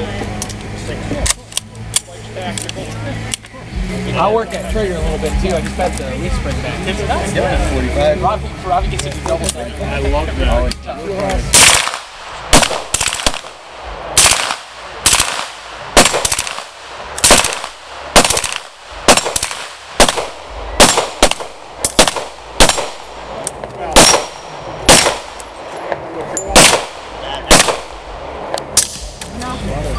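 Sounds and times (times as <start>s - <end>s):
rifle firing rapidly: 11.5s - 23.3s, 23.9s - 25.5s, 26.5s - 29.2s
pistol shots: 11.5s - 25.6s, 26.5s - 29.2s.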